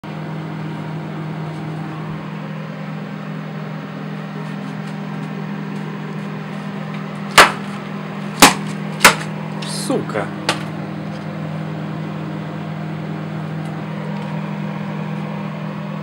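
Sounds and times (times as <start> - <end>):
microwave oven humming: 0.0 - 16.0.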